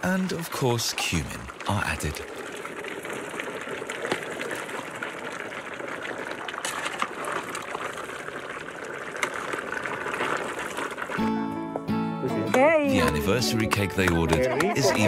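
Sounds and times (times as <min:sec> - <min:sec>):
stew bubbling in a pot: 0:00.0 - 0:11.2.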